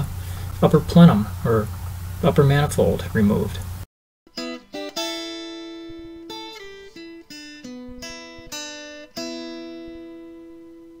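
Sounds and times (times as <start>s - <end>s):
plucked acoustic guitar notes: 4.4s - 10.9s.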